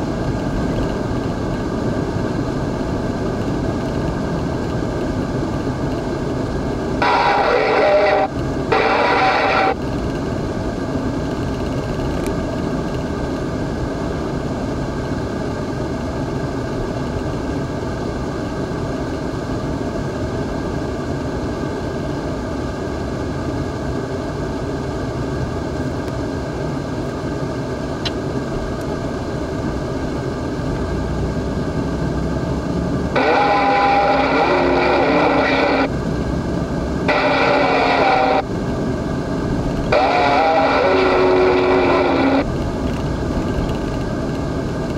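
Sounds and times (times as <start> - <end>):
car driving on highway: 0.0 - 44.9
radio-like sound: 6.9 - 10.0, 33.1 - 35.9, 36.9 - 38.5, 39.8 - 42.6.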